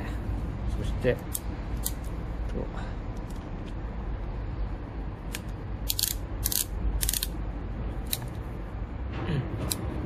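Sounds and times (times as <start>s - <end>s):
ratchet clicking: 5.3s - 7.4s.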